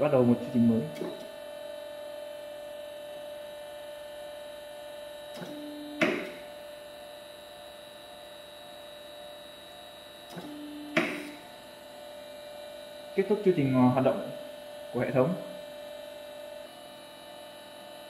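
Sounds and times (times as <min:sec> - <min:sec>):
electric pump humming: 0:00.0 - 0:18.0
hydraulic cylinder clack: 0:05.4 - 0:06.5, 0:10.3 - 0:11.4.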